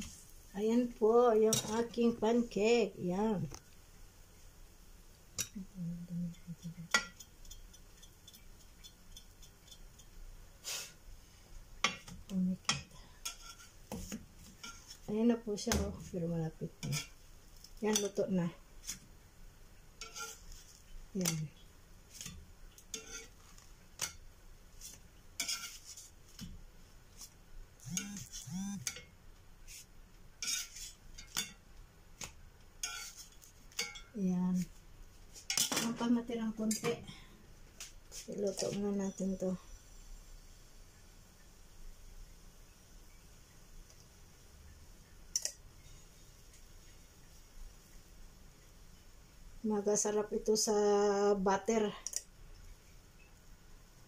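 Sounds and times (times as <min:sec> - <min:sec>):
metal spatula clinking on pan: 0:06.9 - 0:10.1, 0:20.0 - 0:20.4, 0:22.9 - 0:23.3, 0:32.8 - 0:34.2
metal spatula scraping pan: 0:12.7 - 0:15.1, 0:16.8 - 0:17.2, 0:20.0 - 0:21.5, 0:22.2 - 0:24.2, 0:25.4 - 0:26.2, 0:30.4 - 0:31.5, 0:32.8 - 0:34.1.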